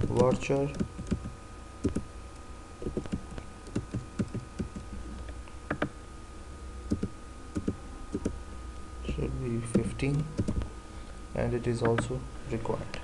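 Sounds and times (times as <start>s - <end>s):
computer keyboard typing: 2.9s - 4.8s.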